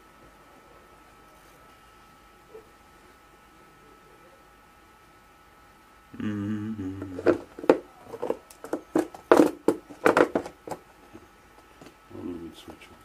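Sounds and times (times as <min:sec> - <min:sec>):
low hum: 0:00.0 - 0:08.6.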